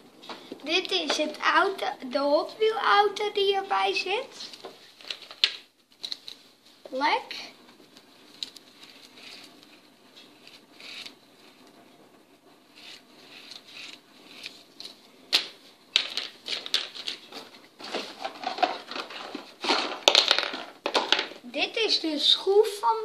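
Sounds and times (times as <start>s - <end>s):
plastic packaging crinkling: 14.8s - 21.1s.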